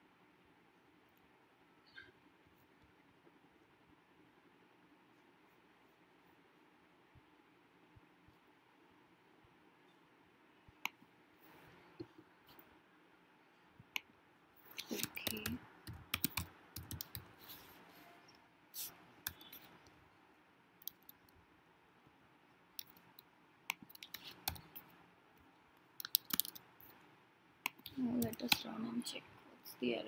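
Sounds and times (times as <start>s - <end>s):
typing on keyboard: 14.8s - 17.3s, 20.8s - 21.3s, 22.8s - 24.9s, 26.0s - 26.7s.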